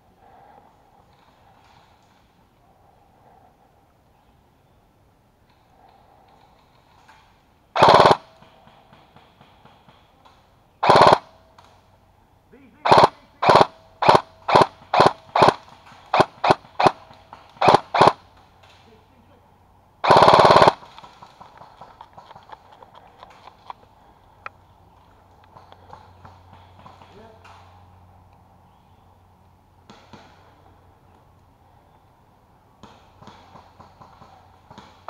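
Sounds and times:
airsoft rifle firing: 0:07.8 - 0:08.5, 0:10.8 - 0:11.4, 0:12.8 - 0:18.3, 0:20.0 - 0:21.6.

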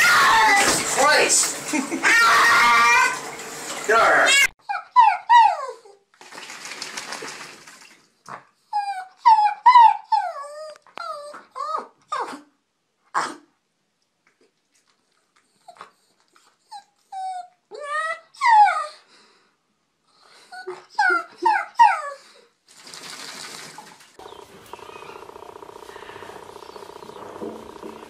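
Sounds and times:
dog whining and howling: 0:00.0 - 0:00.8, 0:04.6 - 0:06.0, 0:08.7 - 0:12.4, 0:16.7 - 0:19.1, 0:20.5 - 0:22.3
cat growling: 0:24.2 - 0:28.0.

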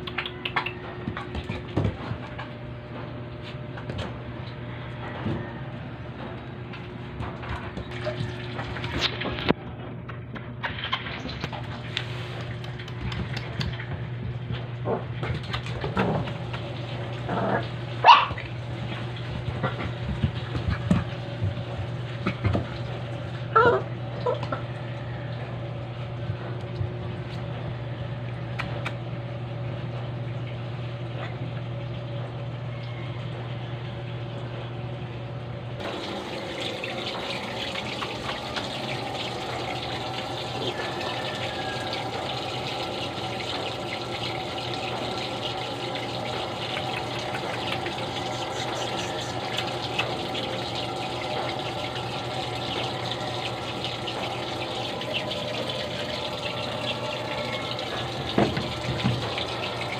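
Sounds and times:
water running from a tap: 0:07.4 - 0:09.5, 0:15.2 - 0:28.9, 0:35.8 - 0:59.9.

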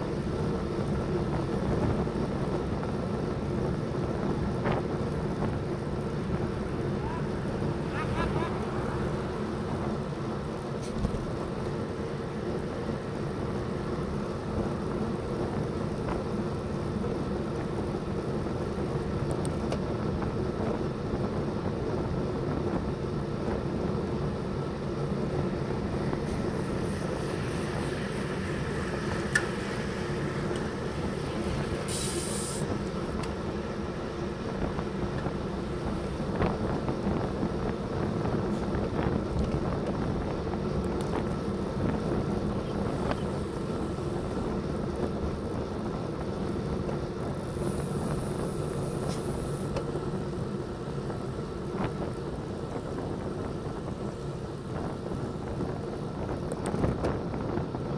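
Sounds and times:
bicycle road rumble: 0:00.0 - 0:57.9
wind noise: 0:00.0 - 0:57.9
short high hiss: 0:31.9 - 0:32.6.

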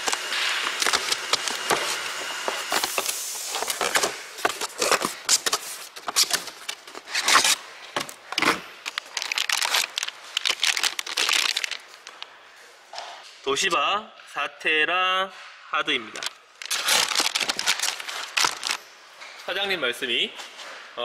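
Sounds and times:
packing tape tearing: 0:00.0 - 0:12.3, 0:16.2 - 0:18.9
foil bags crinkling: 0:00.0 - 0:12.4, 0:16.2 - 0:19.0.

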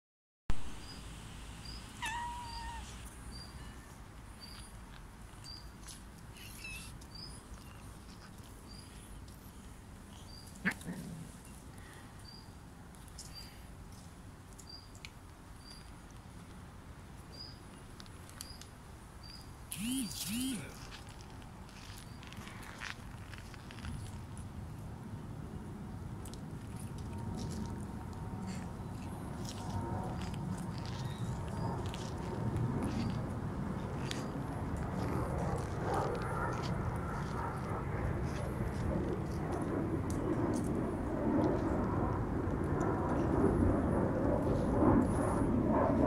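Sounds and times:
cats meowing: 0:02.0 - 0:03.1
faint high peep: 0:19.7 - 0:20.8.

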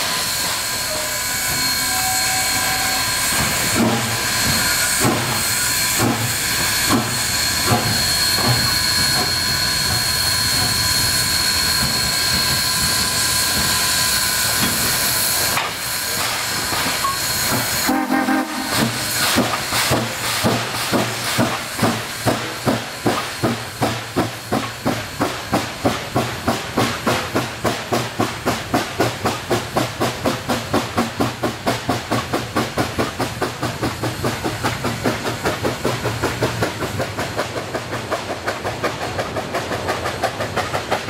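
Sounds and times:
hiss of escaping steam: 0:00.0 - 0:37.4
steam locomotive exhaust beat: 0:00.0 - 0:41.0.

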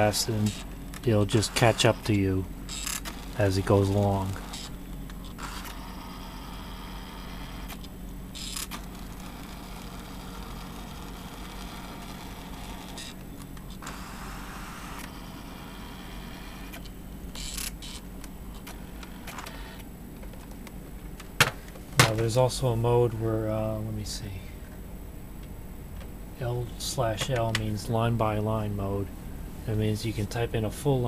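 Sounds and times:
typewriter print mechanism whirring: 0:00.0 - 0:19.9.

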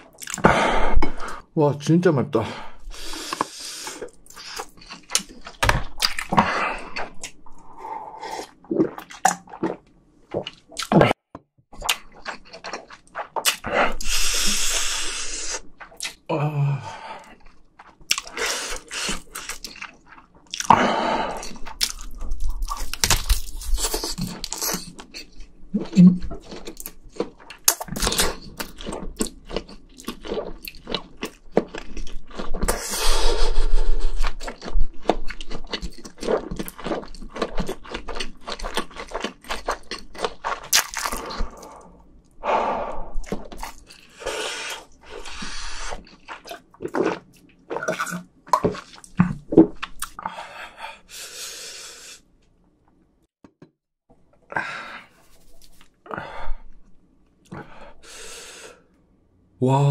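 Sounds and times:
chewing and wet mouth sounds: 0:00.0 - 0:00.5, 0:02.9 - 0:11.0, 0:11.8 - 0:16.3, 0:17.2 - 0:42.4, 0:43.1 - 0:51.4.

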